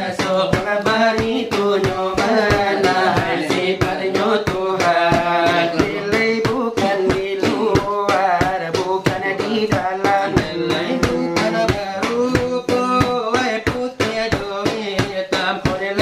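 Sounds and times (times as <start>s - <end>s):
voices chanting: 0.0s - 7.8s, 10.0s - 12.4s
fingers beating brass tray: 0.0s - 16.0s.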